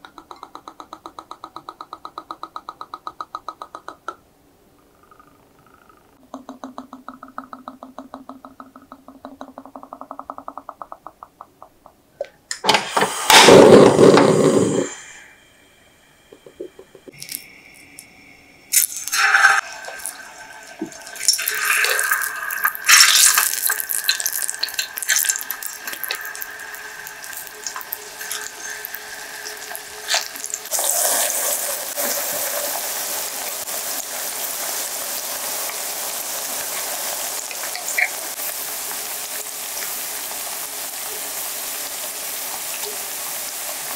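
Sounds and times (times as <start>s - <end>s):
oil trickling into a pan: 18.7s - 43.2s
banana slices sizzling in oil: 18.7s - 43.9s.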